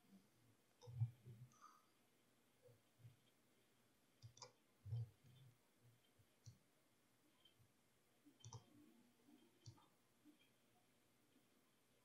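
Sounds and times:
faint mouse clicks: 0:00.8 - 0:01.8, 0:04.2 - 0:05.6, 0:06.4 - 0:06.6, 0:08.3 - 0:10.6.

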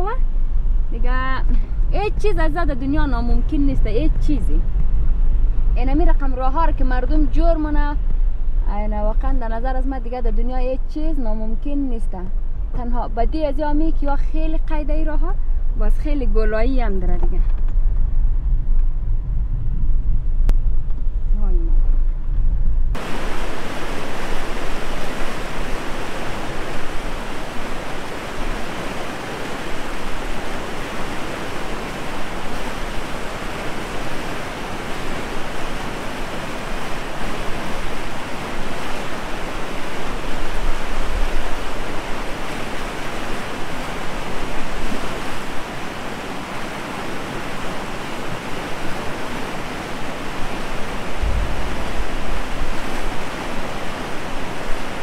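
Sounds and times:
fast river rushing: 0:23.0 - 0:55.0.

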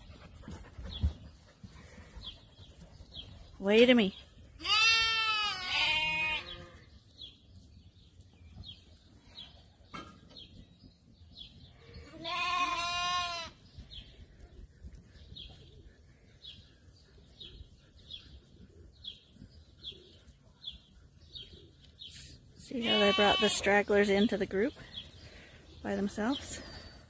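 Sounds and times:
sheep bleating: 0:04.6 - 0:06.9, 0:12.0 - 0:13.6, 0:22.8 - 0:23.7.

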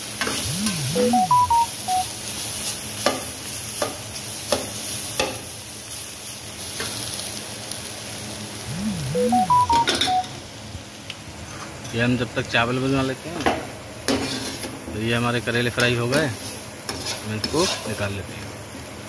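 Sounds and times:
electronic jingle with beeps: 0:00.4 - 0:02.1, 0:08.7 - 0:10.4
food sizzling in oil: 0:01.7 - 0:08.8, 0:16.2 - 0:19.0
spatula scraping pan: 0:16.9 - 0:18.0.

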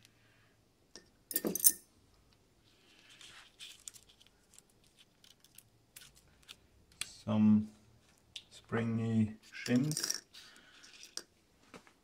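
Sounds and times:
metal bicycle parts clinking: 0:09.6 - 0:10.3.

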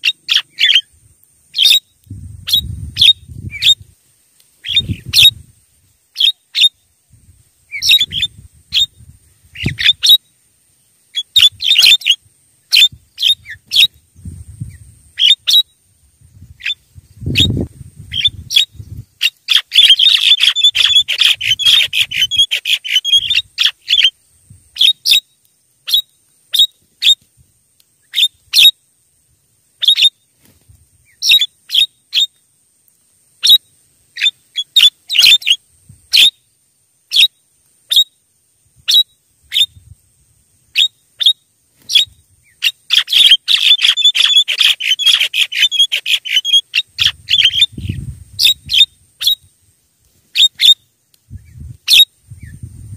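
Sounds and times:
mynas chattering calls: 0:00.0 - 0:00.9, 0:04.6 - 0:05.4, 0:06.1 - 0:06.8, 0:07.7 - 0:10.3, 0:11.1 - 0:14.0, 0:15.2 - 0:15.7, 0:16.6 - 0:25.2, 0:34.2 - 0:36.3, 0:40.7 - 0:49.4.

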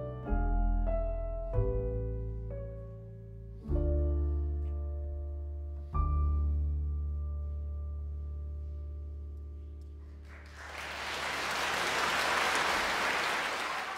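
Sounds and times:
piano and double bass chord: 0:00.0 - 0:09.8
audience applause: 0:10.2 - 0:13.9.

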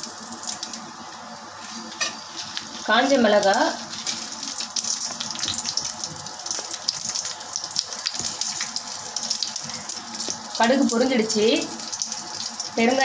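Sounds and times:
seeds sizzling in hot oil: 0:00.0 - 0:13.0
crackles and pops: 0:03.4 - 0:11.0.

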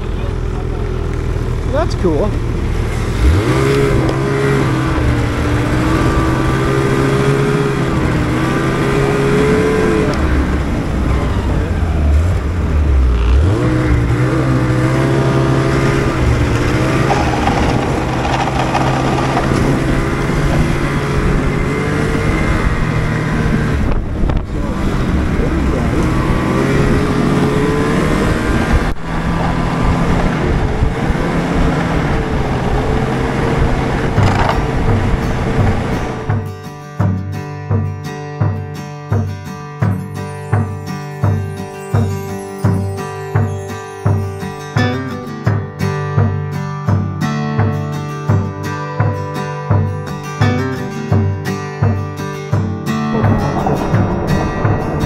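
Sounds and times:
snowmobile engine revving: 0:00.0 - 0:36.3.

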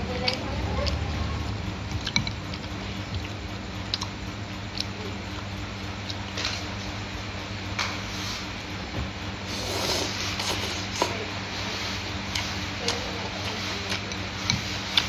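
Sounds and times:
steady low hum: 0:00.0 - 0:15.0
person chewing food: 0:01.9 - 0:06.6.

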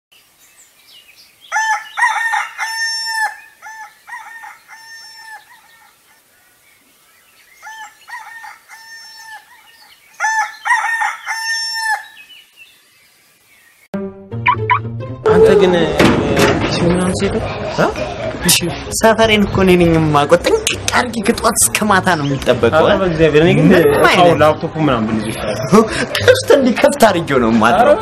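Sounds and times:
rooster crowing: 0:01.5 - 0:06.0, 0:07.6 - 0:12.2.

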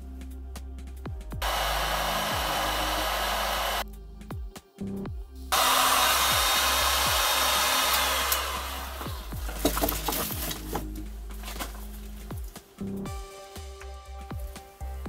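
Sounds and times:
heat gun blowing hot air: 0:01.4 - 0:03.8, 0:05.5 - 0:10.6.

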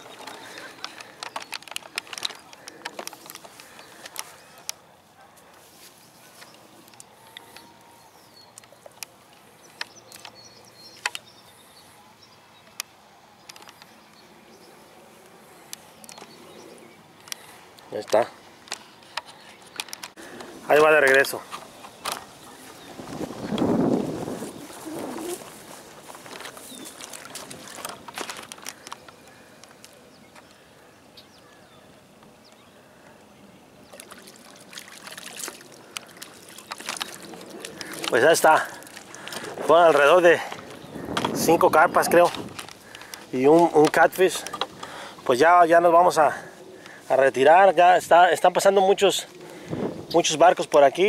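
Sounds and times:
light water splashing: 0:33.9 - 0:39.4.

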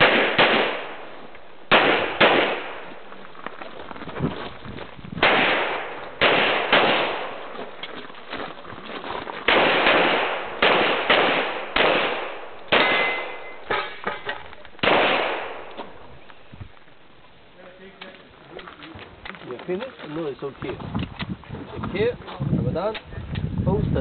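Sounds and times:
handgun shots echoing: 0:00.0 - 0:02.9, 0:05.2 - 0:07.5, 0:09.5 - 0:16.0.

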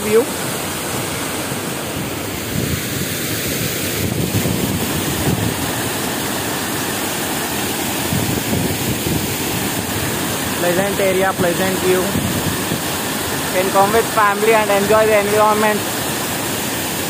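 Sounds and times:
water rushing over weir: 0:00.0 - 0:17.0
wind buffeting microphone: 0:00.9 - 0:06.3, 0:07.9 - 0:13.9.

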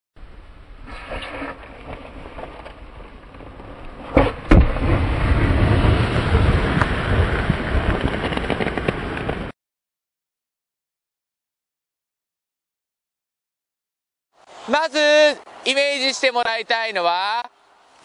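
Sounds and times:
snowboard rumbling over snow: 0:00.8 - 0:09.6.

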